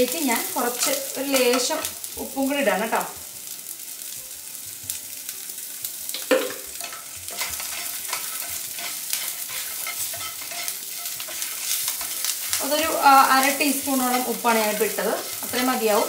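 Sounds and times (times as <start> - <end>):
food sizzling in a pan: 0.0 - 16.0
spoon clacking against pan: 6.1 - 16.0
spoon stirring and scraping: 6.8 - 16.0.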